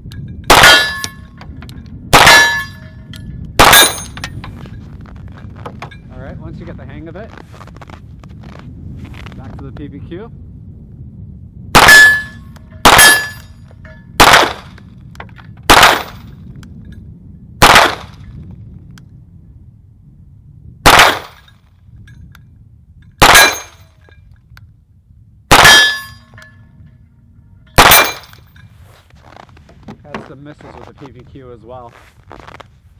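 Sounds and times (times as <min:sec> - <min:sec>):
pistol shots: 0:00.5 - 0:01.2, 0:02.1 - 0:02.8, 0:03.6 - 0:04.2, 0:11.8 - 0:13.4, 0:14.2 - 0:14.8, 0:15.7 - 0:16.2, 0:17.6 - 0:18.2, 0:20.8 - 0:21.4, 0:23.2 - 0:23.8, 0:25.5 - 0:26.2, 0:27.8 - 0:28.4
thin ringing tone: 0:11.9 - 0:14.2.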